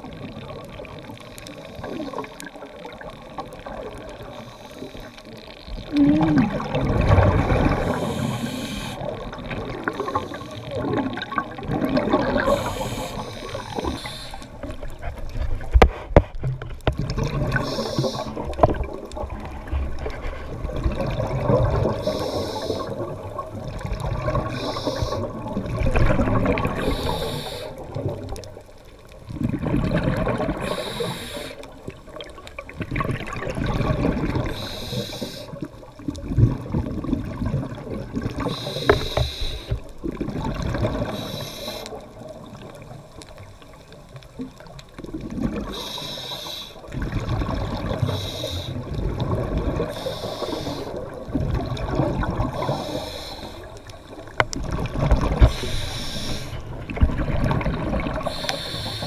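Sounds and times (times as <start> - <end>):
exhaled bubbles underwater: 0.0 - 15.8, 16.6 - 59.0
regulator inhalation hiss: 7.8 - 9.1, 12.5 - 14.6, 17.6 - 18.4, 22.0 - 23.1, 24.5 - 25.4, 26.8 - 27.9, 30.6 - 31.7, 34.5 - 35.6, 38.4 - 39.8, 41.0 - 42.0, 45.6 - 46.9, 48.0 - 48.9, 49.9 - 51.1, 52.6 - 53.8, 55.5 - 56.6, 58.2 - 59.0.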